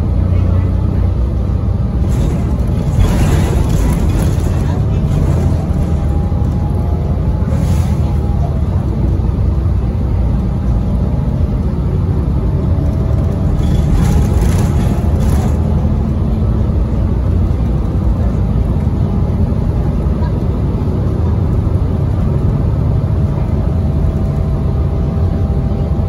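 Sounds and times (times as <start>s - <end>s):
bus engine and road rumble: 0.0s - 26.0s.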